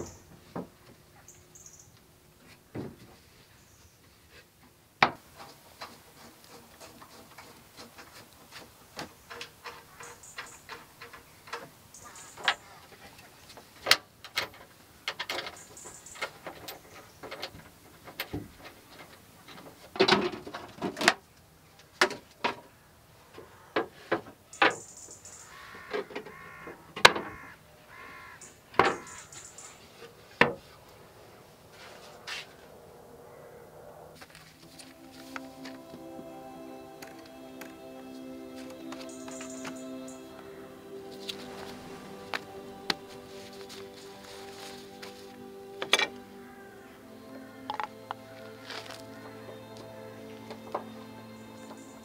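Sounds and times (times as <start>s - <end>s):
crow cawing: 25.4s - 29.5s, 46.4s - 47.8s.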